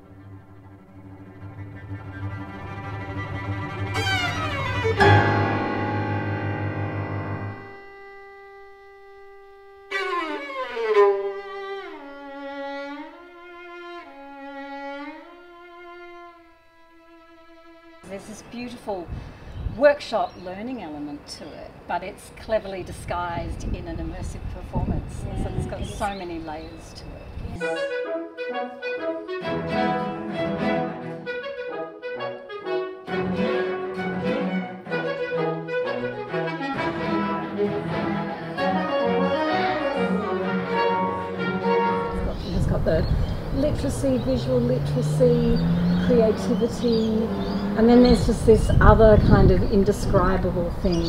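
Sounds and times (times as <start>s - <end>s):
french horn: 0.0s - 13.3s, 27.6s - 48.2s
violin sliding between notes: 0.0s - 18.3s, 27.6s - 31.7s, 32.7s - 48.0s
bowed strings playing: 0.0s - 19.0s, 27.5s - 51.0s
cello: 0.0s - 19.0s, 23.6s - 51.0s.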